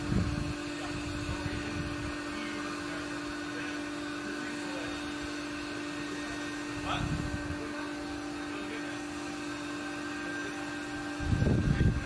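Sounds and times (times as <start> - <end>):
wind buffeting microphone: 0.0 - 2.2, 6.8 - 7.6, 11.1 - 12.0
steady hum: 0.0 - 12.0.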